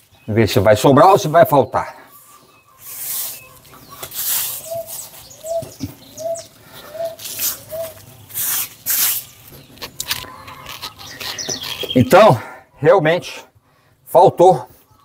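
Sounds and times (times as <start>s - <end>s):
bird calling: 1.1s - 12.9s
hands scraping granular mix: 2.8s - 5.4s, 7.1s - 12.0s.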